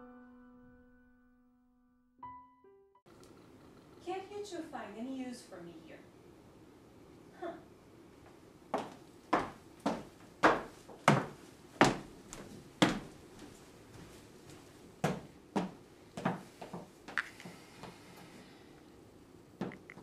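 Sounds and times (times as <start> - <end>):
high heels clicking on wood floor: 8.8 - 18.0.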